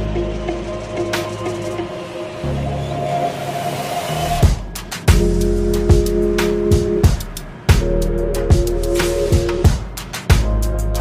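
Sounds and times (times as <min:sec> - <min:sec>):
held chords: 0:00.0 - 0:11.0
kick-drum hits: 0:04.4 - 0:06.1, 0:06.7 - 0:08.7, 0:09.3 - 0:10.6.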